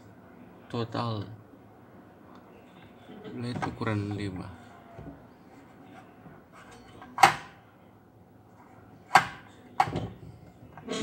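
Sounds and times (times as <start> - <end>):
sharp knocks on tabletop: 9.2 - 10.2.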